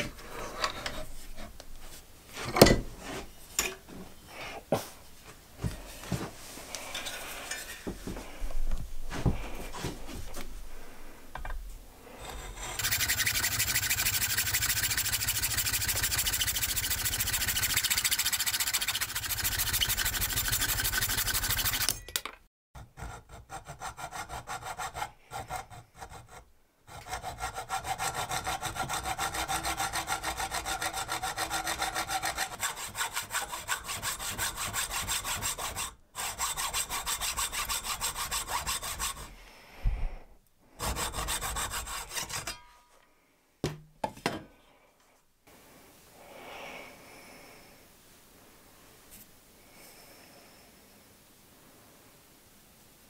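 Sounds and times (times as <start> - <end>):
hacksaw cutting wood: 12.3 - 22.0, 22.8 - 39.3, 40.8 - 42.6.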